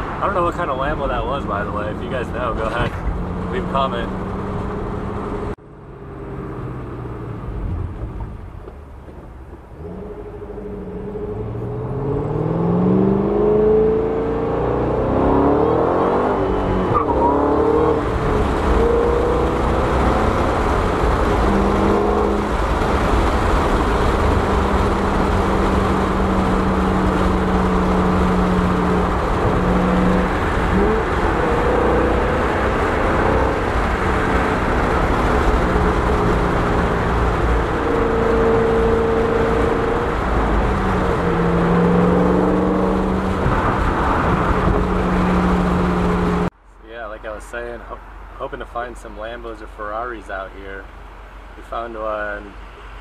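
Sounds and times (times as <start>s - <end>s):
car engine accelerating through gears: 9.8s - 46.5s.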